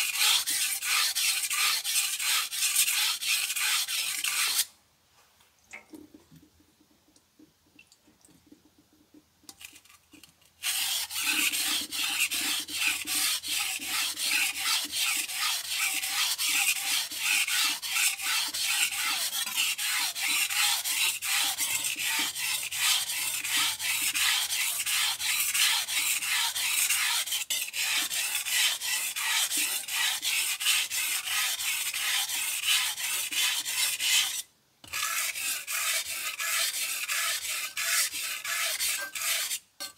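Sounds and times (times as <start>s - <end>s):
knife scraping on whetstone: 0.0s - 4.7s, 10.6s - 39.9s.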